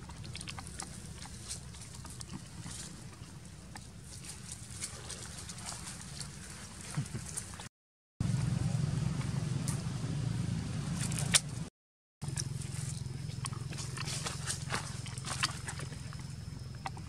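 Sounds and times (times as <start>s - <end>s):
steady low hum: 0.0s - 17.0s
dry leaves crackling and rustling: 4.0s - 7.7s.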